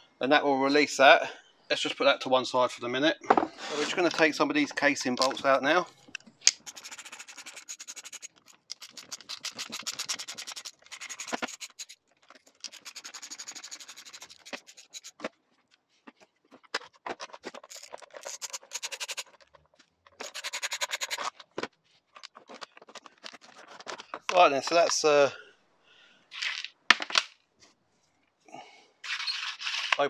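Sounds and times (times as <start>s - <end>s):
screwdriver ticking and scraping: 4.0s - 15.3s, 17.2s - 21.4s.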